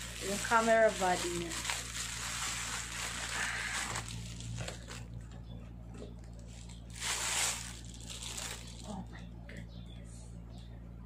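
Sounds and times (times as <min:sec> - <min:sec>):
bubble wrap crinkling: 0:00.0 - 0:05.3, 0:06.2 - 0:09.2.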